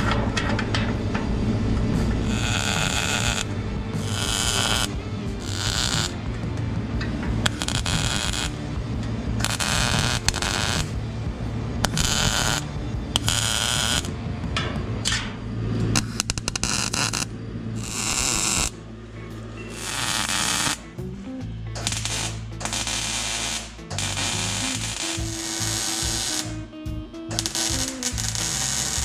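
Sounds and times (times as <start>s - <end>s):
welder crackling and hissing: 1.9s - 6.6s, 7.3s - 11.0s, 11.8s - 14.2s, 15.9s - 18.8s, 19.7s - 20.9s, 21.8s - 26.7s, 27.3s - 29.0s.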